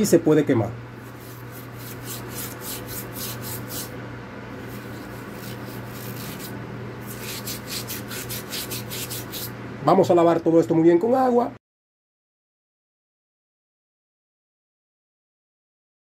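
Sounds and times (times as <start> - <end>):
steel wool scrubbing metal: 1.0 - 4.0, 4.6 - 9.6.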